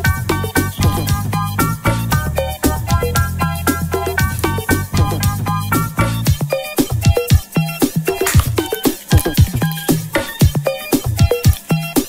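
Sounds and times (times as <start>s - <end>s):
upbeat electronic music: 2.6s - 12.0s.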